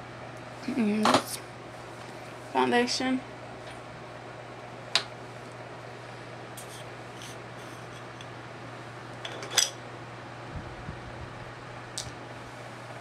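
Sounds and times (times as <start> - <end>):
electric fan humming: 0.0 - 13.0.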